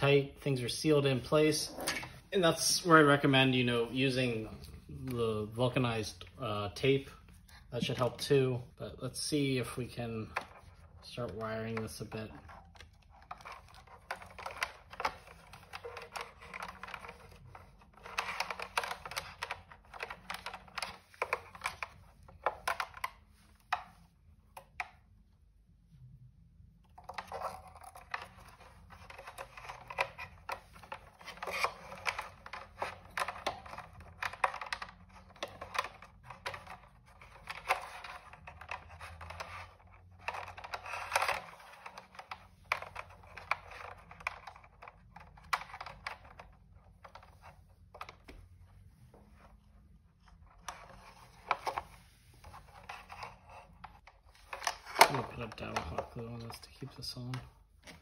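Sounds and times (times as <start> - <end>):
wires clicking against plastic housing: 26.9 - 48.3.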